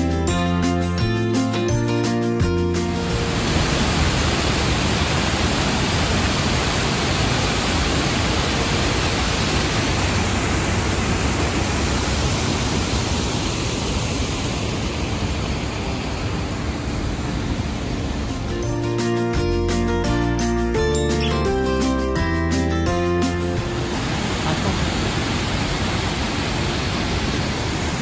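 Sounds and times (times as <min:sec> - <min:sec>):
waterfall rushing: 0:02.8 - 0:18.7, 0:23.4 - 0:28.0.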